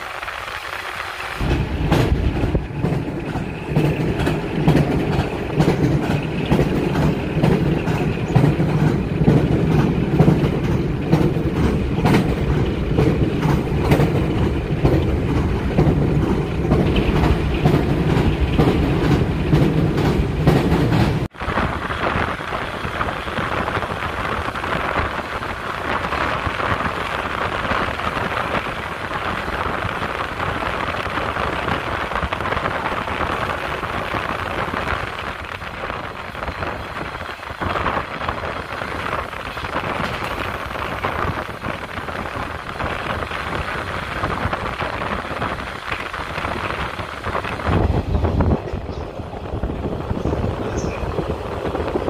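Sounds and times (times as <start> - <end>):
train running rumble: 0.0 - 52.0
wind buffeting microphone: 1.4 - 52.0.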